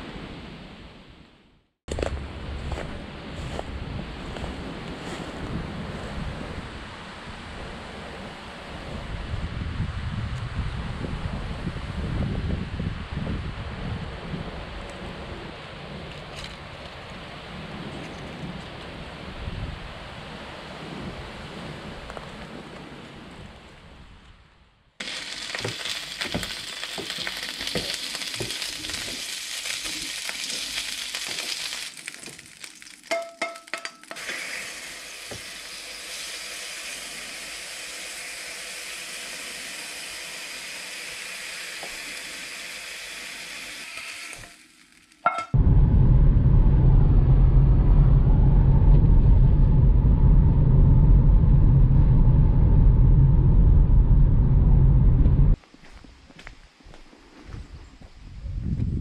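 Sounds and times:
sausages and bacon sizzling: 25.0s - 45.3s
car driving rumble inside cabin: 45.6s - 55.6s.

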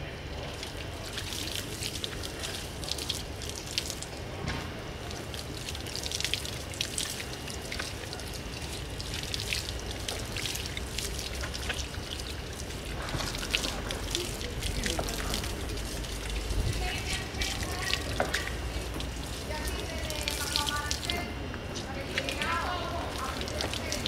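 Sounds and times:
hose water spraying and splashing: 0.4s - 4.2s, 5.0s - 24.0s.

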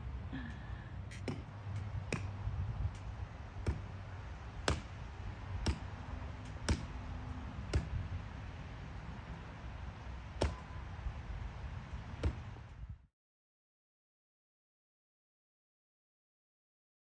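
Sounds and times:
hand tool striking tree stump: 1.1s - 4.0s, 4.6s - 7.0s, 7.7s - 8.0s, 10.4s - 10.7s.

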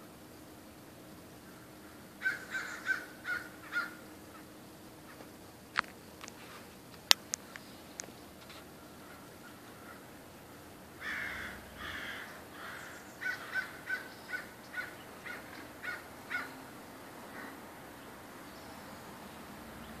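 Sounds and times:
crows cawing: 1.4s - 4.4s, 8.8s - 17.6s.

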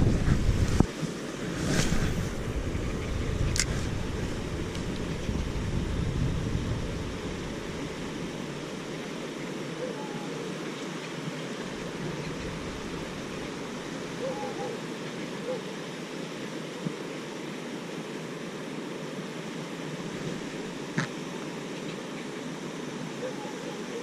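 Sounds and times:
wind on microphone: 0.0s - 8.9s
low rumble: 1.8s - 8.8s.

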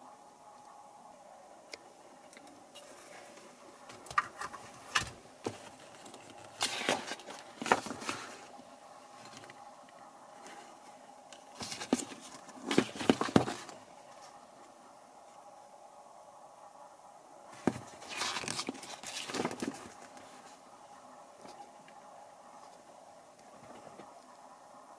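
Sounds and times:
faint steady hum: 0.0s - 24.9s
paper pages rustling: 4.8s - 8.6s, 11.6s - 13.8s, 17.6s - 20.2s.

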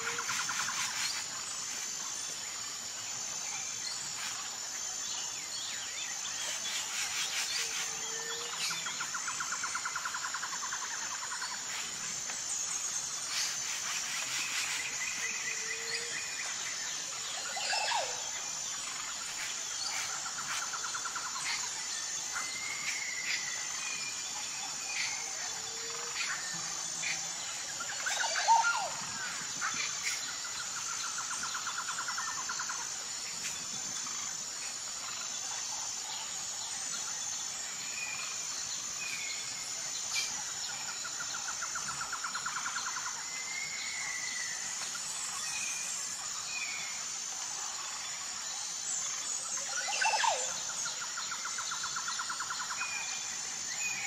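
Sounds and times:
high insect drone: 0.0s - 54.0s
pulsing insect chirp: 0.0s - 54.0s.

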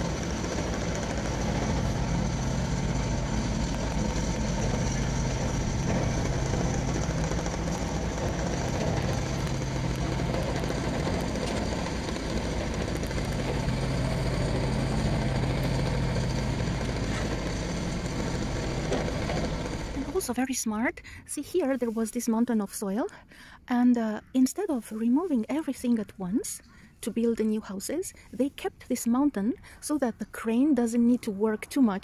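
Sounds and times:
machine engine idling: 0.0s - 20.3s.

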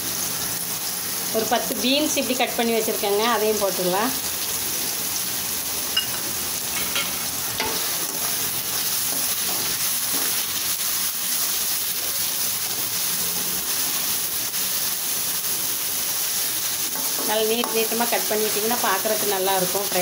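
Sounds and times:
vegetables sizzling in hot oil: 0.0s - 20.0s.

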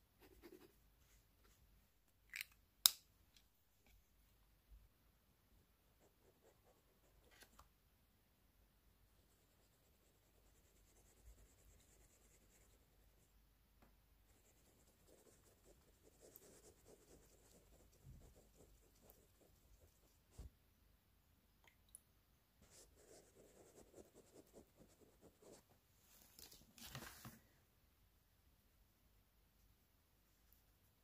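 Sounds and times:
paintbrush scratchy rubbing: 14.3s - 20.5s.

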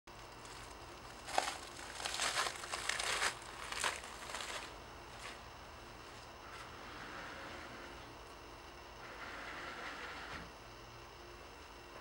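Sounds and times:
rustling and crinkling: 0.3s - 5.4s.

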